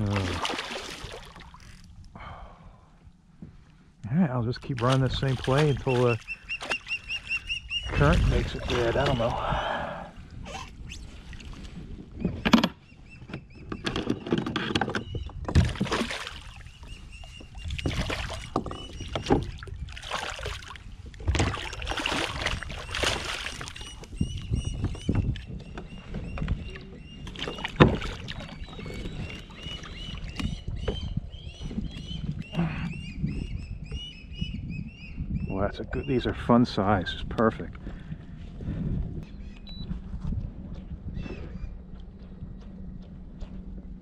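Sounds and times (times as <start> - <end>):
water splashing and sloshing: 0.0 - 2.1, 4.5 - 13.4, 14.0 - 32.6.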